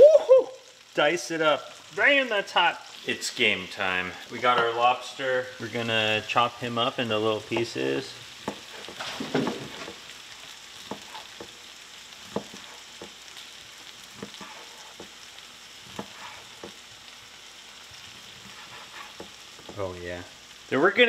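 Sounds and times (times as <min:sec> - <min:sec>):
faint steady hiss: 0:00.0 - 0:21.0
knife tapping cutting board: 0:07.5 - 0:07.7, 0:08.4 - 0:08.7, 0:10.8 - 0:11.6, 0:12.2 - 0:13.2, 0:15.9 - 0:16.8.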